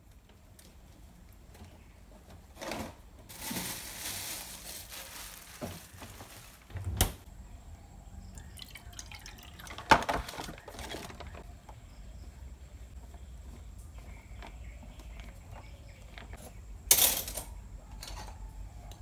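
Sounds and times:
water pouring into a mug: 0:08.4 - 0:10.0.

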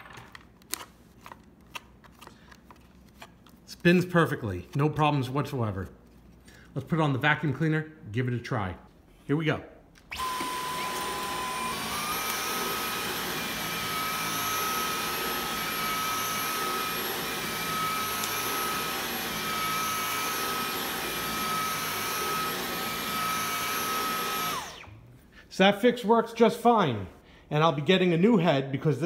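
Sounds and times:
vacuum brush head on rug: 0:10.0 - 0:25.0
vacuum cleaner motor whine: 0:10.1 - 0:25.1.

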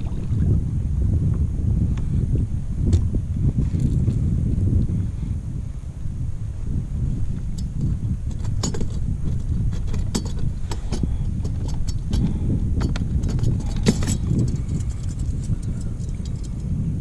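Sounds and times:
wind buffeting microphone: 0:00.0 - 0:17.0
fishing gear clicking and rattling: 0:07.4 - 0:16.8.

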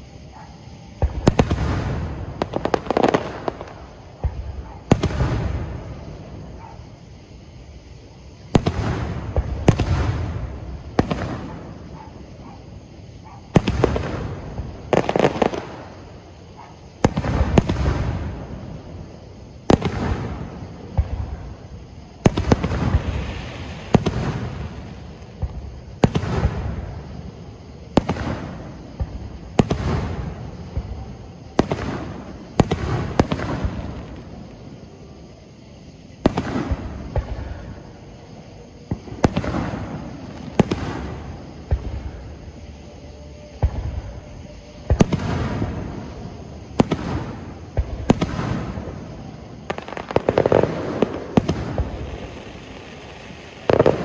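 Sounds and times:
fireworks bursting with bangs: 0:00.0 - 0:54.0.

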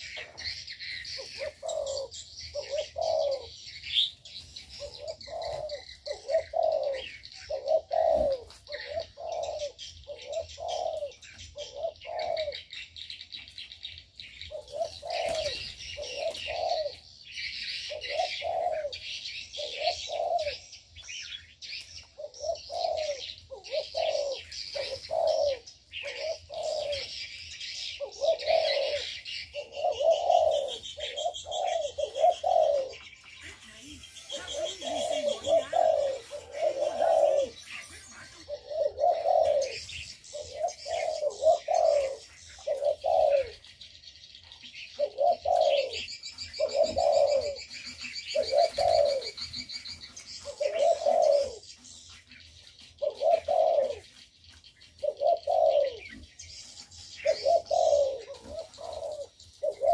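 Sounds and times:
doves cooing: 0:00.0 - 0:59.9
small birds chirping: 0:00.0 - 0:59.9.

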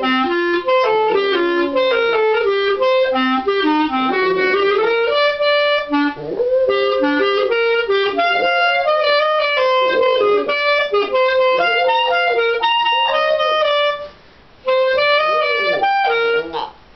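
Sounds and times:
clarinet melody: 0:00.0 - 0:16.9
small dog howling: 0:06.2 - 0:08.9, 0:12.9 - 0:13.6, 0:15.1 - 0:16.8.

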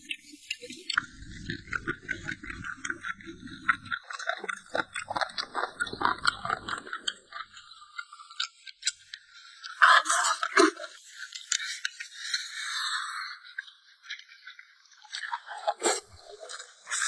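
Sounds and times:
close-up chewing: 0:00.9 - 0:12.0, 0:15.1 - 0:17.0.

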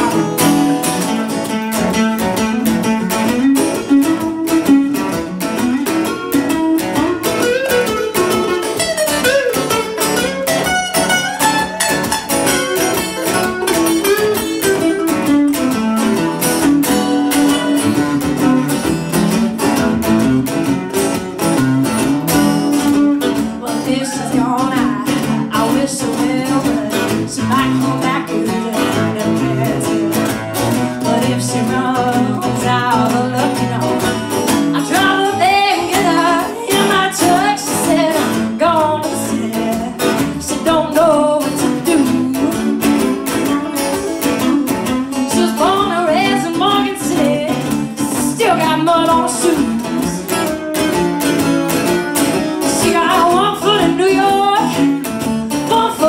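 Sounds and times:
woman singing: 0:00.0 - 0:01.3, 0:12.8 - 0:18.5, 0:22.3 - 0:50.6, 0:52.5 - 0:56.0
acoustic guitars strumming: 0:00.0 - 0:56.0.

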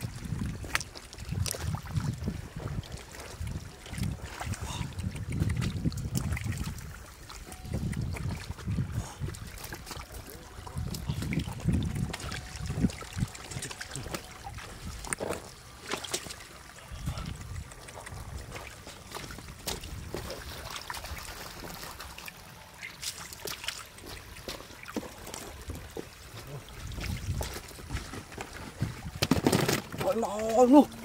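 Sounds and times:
splashes in water: 0:00.0 - 0:31.0
stream water trickling: 0:00.0 - 0:31.0.

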